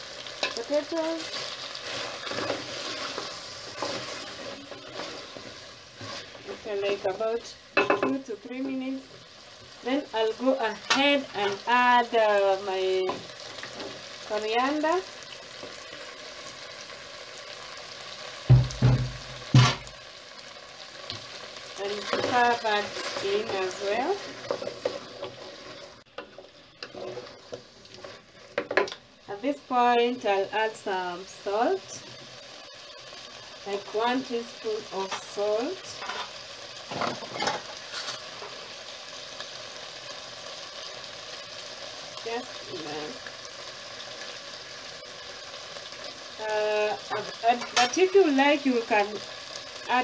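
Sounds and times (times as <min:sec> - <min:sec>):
vegetables sizzling in pot: 0:00.0 - 0:50.0
loud knocks: 0:18.5 - 0:19.9.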